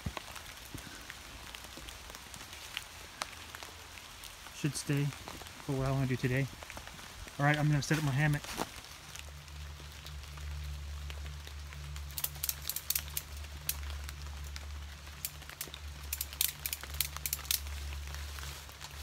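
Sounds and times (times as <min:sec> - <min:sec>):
ratchet strap clicking: 0:12.1 - 0:13.8, 0:15.2 - 0:17.7.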